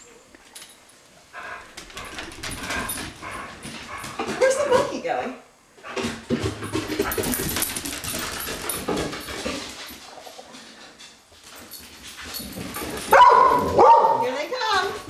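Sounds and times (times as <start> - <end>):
dog panting and snuffling: 1.3 - 5.0.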